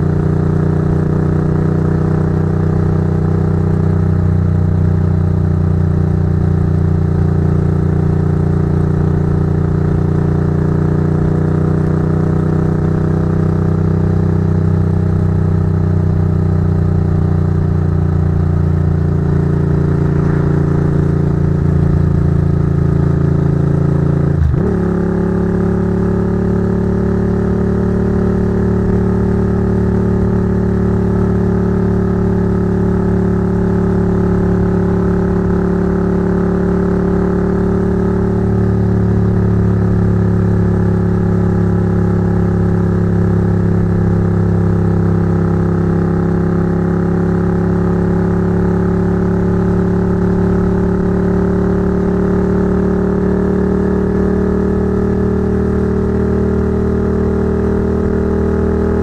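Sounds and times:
motorcycle engine cruising: 0.0s - 59.0s.

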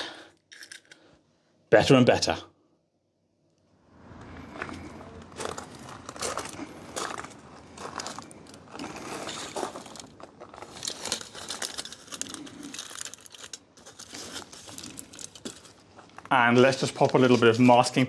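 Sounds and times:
aluminium foil crinkling: 5.5s - 18.0s.

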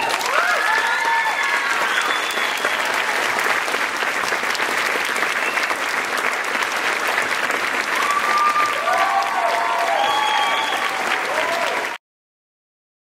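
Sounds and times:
cheering whoops: 0.0s - 3.5s, 7.9s - 12.0s
audience applauding: 0.0s - 12.0s.

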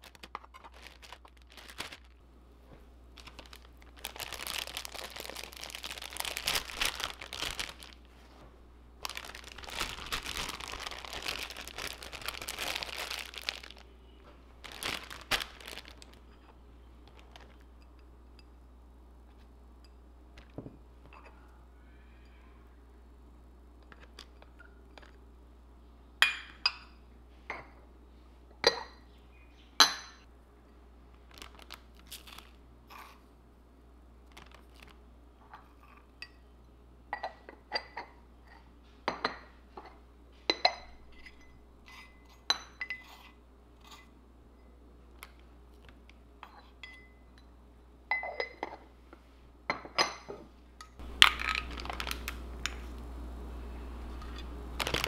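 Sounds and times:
utensil clinking on ceramic dishes: 46.4s - 47.5s.

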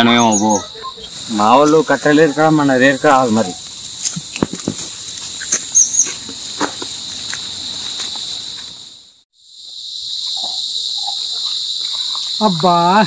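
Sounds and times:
insect chirring: 0.0s - 13.0s.

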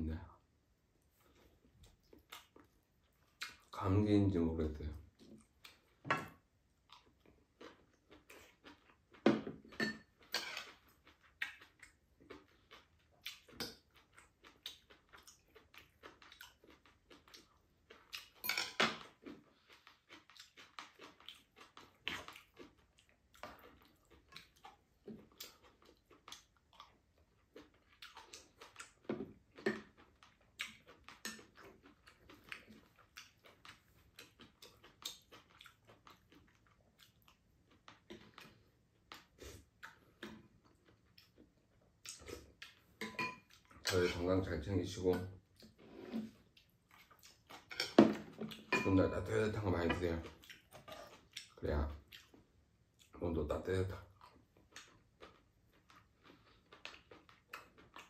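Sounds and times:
chewing: 1.1s - 3.8s, 6.8s - 53.2s, 53.9s - 58.0s
spoon clinking against pan and bowls: 43.0s - 44.1s, 48.7s - 49.2s.

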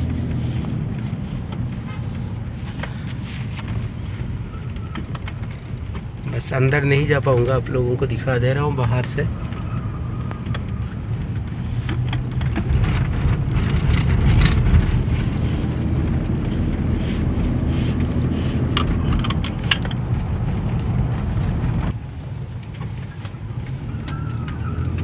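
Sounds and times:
car engine and road rumble: 0.0s - 25.0s.

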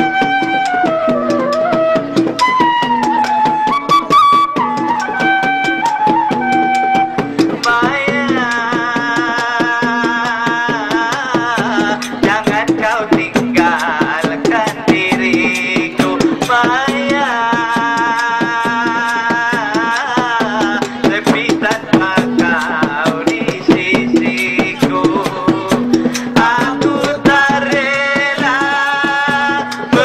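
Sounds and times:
drums and percussion: 0.0s - 30.0s
man singing: 7.6s - 30.0s.

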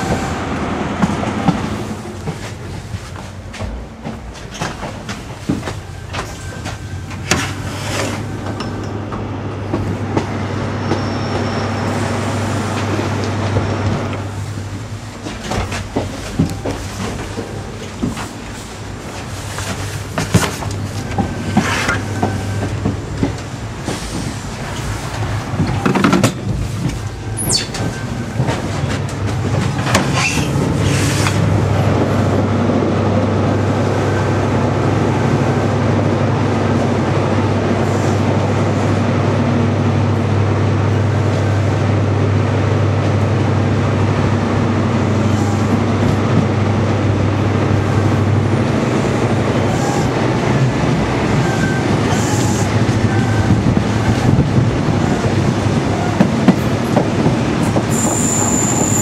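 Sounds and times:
rail joints clicking: 0.0s - 11.1s, 12.6s - 37.2s, 44.2s - 59.0s
train rumble: 0.0s - 59.0s
wheel squeal: 10.8s - 11.9s, 27.3s - 28.6s, 51.4s - 54.4s, 57.9s - 59.0s.

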